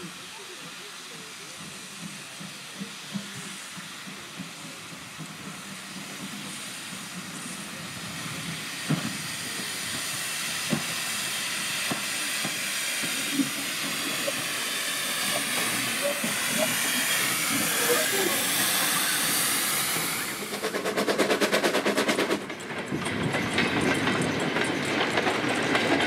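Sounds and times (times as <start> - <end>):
steam hissing from locomotive: 0.0 - 26.0
wheels clanking over rail joints: 11.8 - 26.0.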